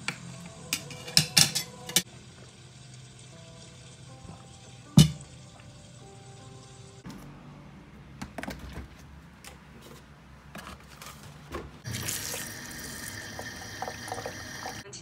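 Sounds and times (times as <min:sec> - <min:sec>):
tap water running into sink: 0:02.0 - 0:07.0, 0:11.8 - 0:14.8.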